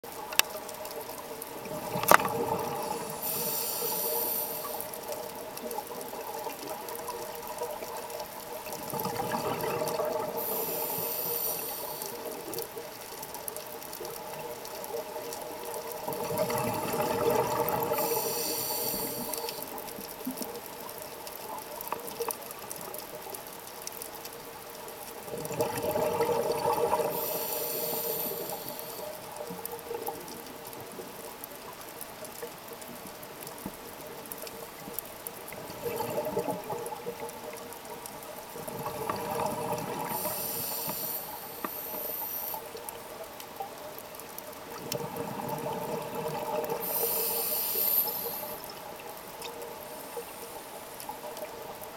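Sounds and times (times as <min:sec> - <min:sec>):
faint steady hum: 0:00.1 - 0:51.9
exhaled bubbles rushing underwater: 0:01.5 - 0:04.4, 0:05.6 - 0:11.5, 0:15.0 - 0:20.4, 0:25.2 - 0:29.0, 0:35.5 - 0:37.6, 0:38.5 - 0:41.9, 0:44.7 - 0:47.2
regulator hiss: 0:02.2 - 0:05.3, 0:10.2 - 0:12.5, 0:17.5 - 0:19.9, 0:26.8 - 0:29.4, 0:39.7 - 0:43.0, 0:46.7 - 0:48.8.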